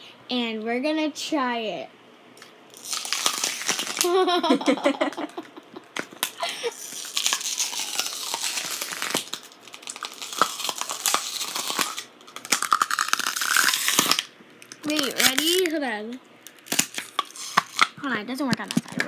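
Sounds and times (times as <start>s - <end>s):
plastic bottles crunching: 2.8s - 4.1s, 6.0s - 15.8s, 16.6s - 18.0s
person giggling: 4.0s - 6.8s.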